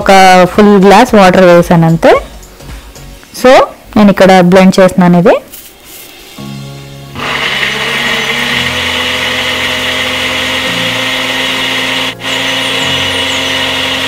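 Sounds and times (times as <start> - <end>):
blender running: 7.2 - 14.0.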